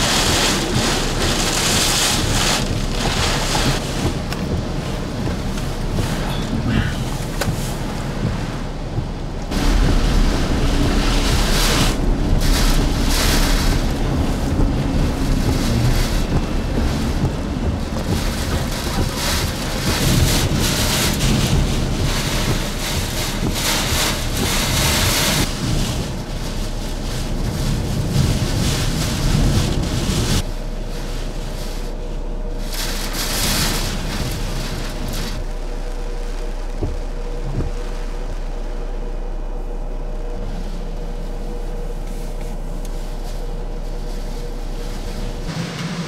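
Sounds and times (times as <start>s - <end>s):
gusting wind: 0.0s - 46.0s
heavy rain: 0.0s - 46.0s
wind rumbling on microphone: 0.0s - 46.0s.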